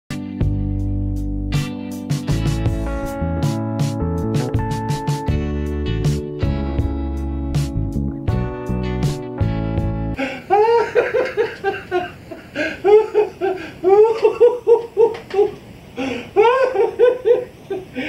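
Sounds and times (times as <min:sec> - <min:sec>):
elderly man laughing: 0:10.2 - 0:18.0.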